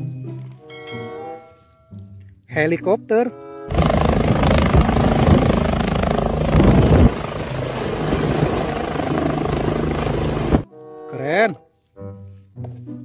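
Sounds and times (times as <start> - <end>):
helicopter rotor blades chopping: 3.7 - 10.6.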